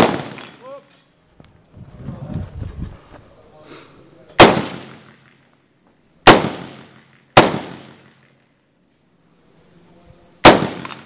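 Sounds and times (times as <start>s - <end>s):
rifle shots echoing: 0.0s - 0.7s, 4.4s - 5.5s, 6.2s - 8.4s, 10.4s - 11.0s.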